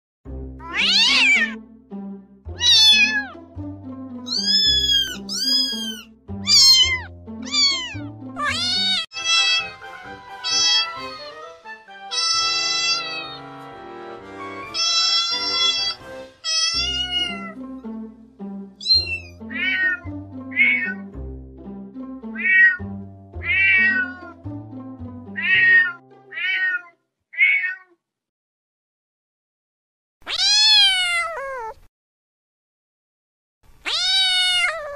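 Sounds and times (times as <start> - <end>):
soft background music: 0.3 - 26.8
cats meowing: 0.6 - 1.6, 2.6 - 3.4, 4.3 - 9.8, 10.4 - 11.0, 12.1 - 13.4, 14.7 - 17.6, 18.8 - 21.0, 22.4 - 24.4, 25.4 - 28.0, 30.2 - 31.9, 33.8 - 34.9
background music with bass: 13.3 - 25.5.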